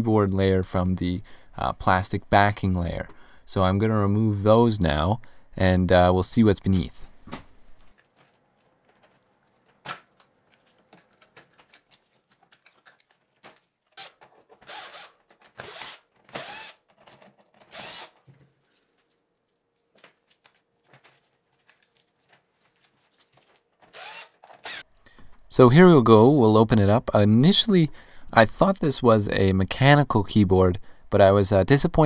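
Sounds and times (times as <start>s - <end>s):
plastic and screws clatter: 7.9s - 18.6s
cordless drill bursts: 14.0s - 16.9s, 17.7s - 18.2s, 23.9s - 24.8s.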